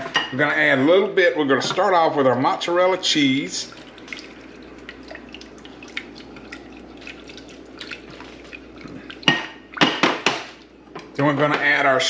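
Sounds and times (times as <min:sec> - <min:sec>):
cheese sauce simmering in a pan: 0:02.8 - 0:11.1
bubbles popping: 0:03.6 - 0:11.0.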